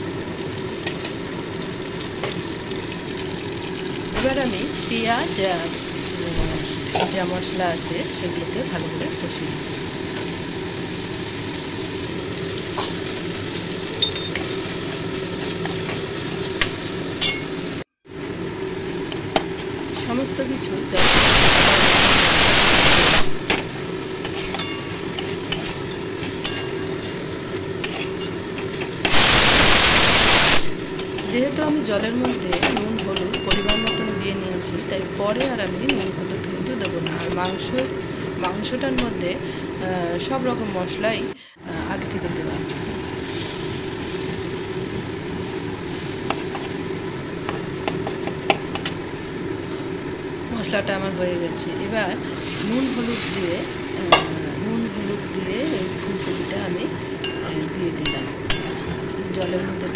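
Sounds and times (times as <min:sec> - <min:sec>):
masala frying in a pan: 0:00.0 - 0:40.9, 0:41.9 - 0:59.9
pressure cooker hissing: 0:00.0 - 0:41.4, 0:42.1 - 0:59.9
light sizzle: 0:00.0 - 0:59.9
spatula scraping metal pan: 0:58.5 - 0:59.0.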